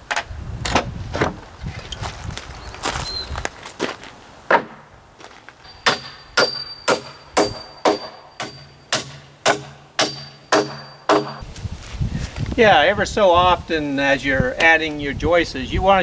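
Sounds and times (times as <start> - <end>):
hammer striking nails into metal: 5.8 - 11.4.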